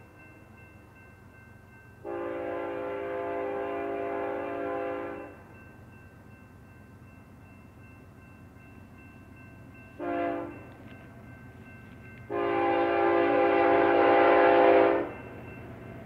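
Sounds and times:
locomotive air horn: 2.0s - 5.3s, 10.0s - 10.6s, 12.3s - 15.1s.

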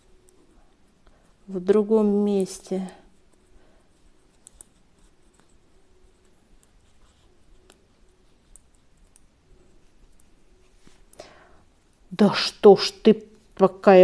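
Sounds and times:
small clicks and handling noise: 4.1s - 11.2s.

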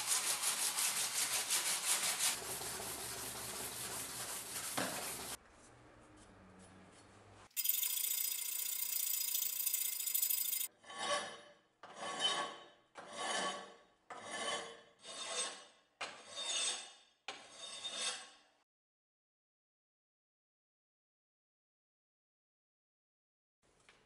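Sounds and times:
hand file rasping on steel: 9.8s - 18.4s.

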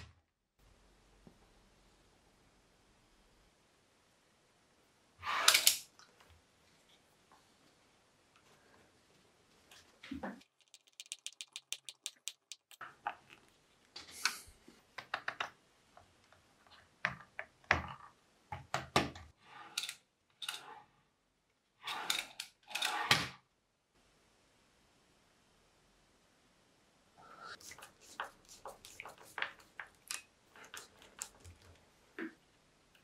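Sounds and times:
small rapid clicks: 10.4s - 13.5s.

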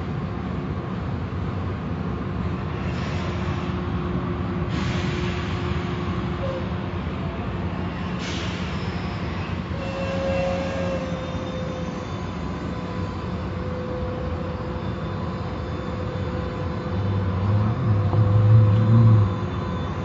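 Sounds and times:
car wash machinery drone: 11.4s - 20.0s.

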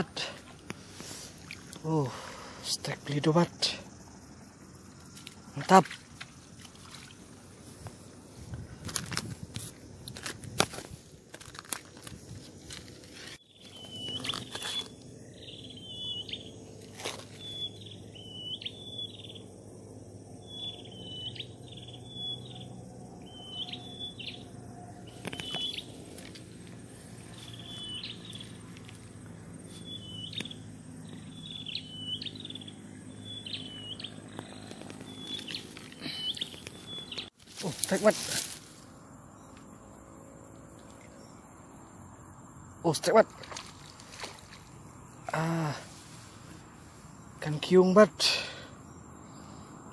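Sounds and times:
bird chirping: 13.4s - 19.6s, 20.4s - 26.0s, 27.2s - 29.0s, 29.6s - 38.1s.

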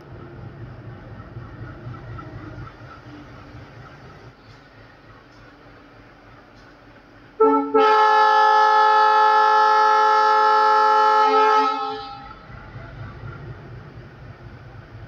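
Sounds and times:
low rumble of running train: 0.0s - 15.0s
train horn blast: 7.4s - 12.5s.

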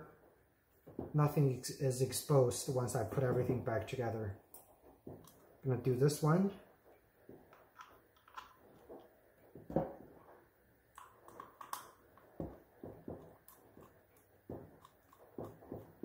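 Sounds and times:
plastic plug being handled: 7.5s - 8.9s, 11.0s - 12.6s.

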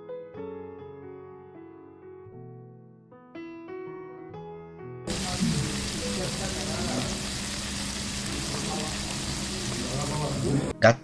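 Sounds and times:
soft piano music: 0.0s - 10.8s
meat sizzling on a grill: 5.1s - 10.7s.

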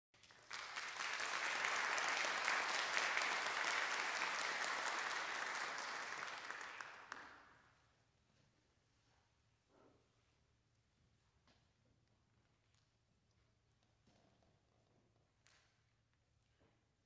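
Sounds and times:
audience applauding: 0.2s - 7.6s.

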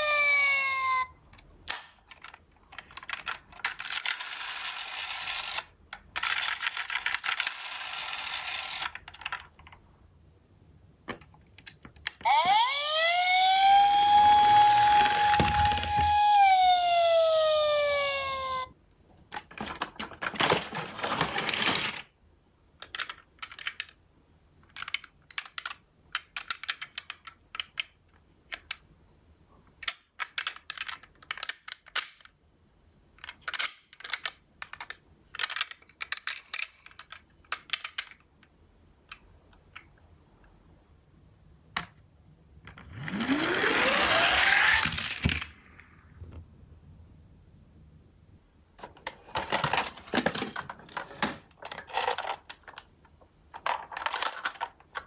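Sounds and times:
toy cars clicking and rattling: 0.0s - 1.1s, 1.7s - 9.8s, 11.6s - 18.7s, 19.3s - 22.1s, 22.8s - 24.0s, 24.6s - 28.8s, 29.8s - 32.4s, 33.2s - 38.3s, 42.7s - 45.6s, 49.0s - 52.9s, 53.5s - 55.0s
toy siren wailing: 0.0s - 1.2s, 12.2s - 18.7s, 43.2s - 45.0s.

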